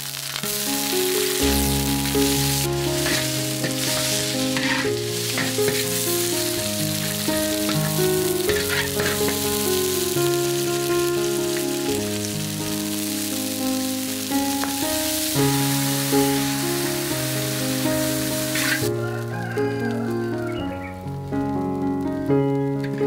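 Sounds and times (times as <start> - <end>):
background music with held notes: 0.0 - 23.0
peppers sizzling in oil: 0.0 - 23.0
metal spatula scraping wok: 1.2 - 10.2, 18.4 - 18.9.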